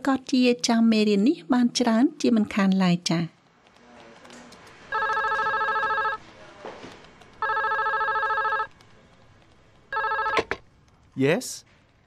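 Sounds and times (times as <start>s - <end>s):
telephone ringing: 4.9s - 6.2s, 7.4s - 8.7s, 9.9s - 10.7s.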